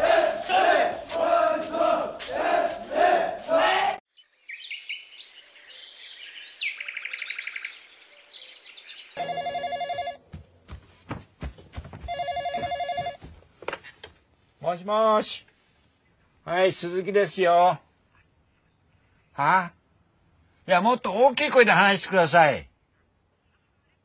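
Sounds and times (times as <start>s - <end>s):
crowd shouting: 0.0s - 4.0s
birds chirping and trilling: 4.1s - 9.2s
desk telephone ringing: 9.2s - 10.2s, 12.1s - 13.2s.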